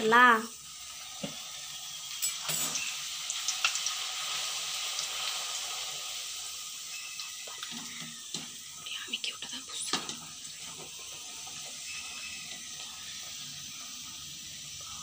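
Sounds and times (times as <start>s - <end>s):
food sizzling in hot oil: 0.0s - 15.0s.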